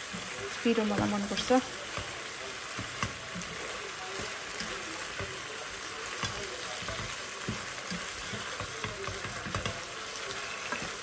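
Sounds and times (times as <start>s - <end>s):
food sizzling in a pan: 0.0s - 11.0s
spatula knocking against pan: 0.9s - 3.6s, 4.2s - 5.5s, 6.2s - 9.9s.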